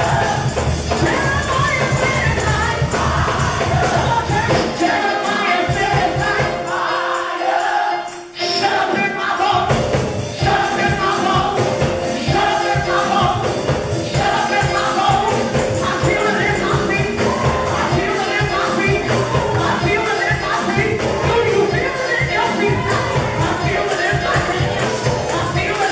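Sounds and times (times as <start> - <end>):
band playing steady beat: 0.0 - 25.9
voices singing along: 0.0 - 25.9
person singing into microphone: 10.4 - 25.9.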